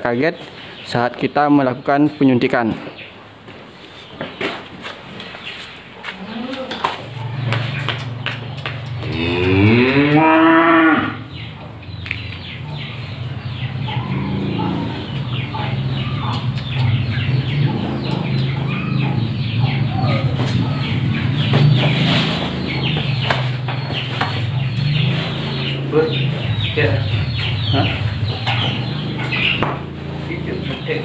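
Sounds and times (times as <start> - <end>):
cow mooing: 9.0 - 11.3, 14.0 - 15.1.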